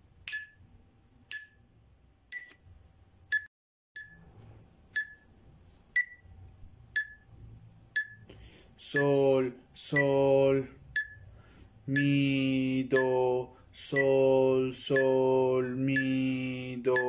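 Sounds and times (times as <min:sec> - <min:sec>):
electronic metronome beeping: 0:00.3 - 0:00.6, 0:01.3 - 0:01.6, 0:02.3 - 0:02.6, 0:03.3 - 0:04.3, 0:05.0 - 0:05.3, 0:06.0 - 0:06.3, 0:07.0 - 0:07.3, 0:08.0 - 0:08.3, 0:11.0 - 0:11.3, 0:13.0 - 0:13.3, 0:13.9 - 0:14.2, 0:14.9 - 0:15.3, 0:15.9 - 0:16.3.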